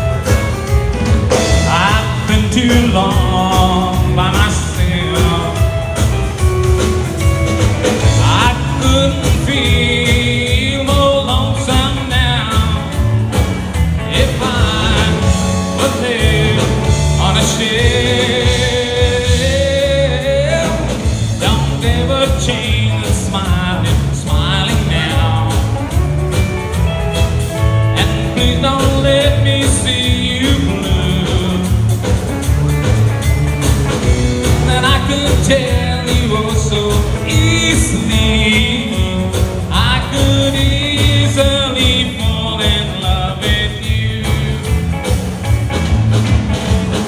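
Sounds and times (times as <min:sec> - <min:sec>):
live band playing: 0:00.0 - 0:47.0
lead vocal singing: 0:01.4 - 0:05.7, 0:08.0 - 0:13.0, 0:14.0 - 0:25.8, 0:28.0 - 0:32.0, 0:34.6 - 0:44.9.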